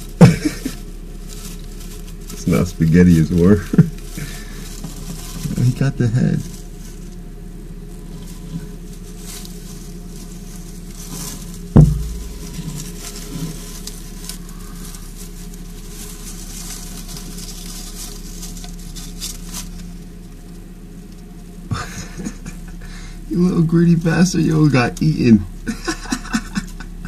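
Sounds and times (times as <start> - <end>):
crackling rustle of paper bedding: 0.0 - 27.0
steady low hum: 0.0 - 27.0
sharp thump: 11.8 - 12.8.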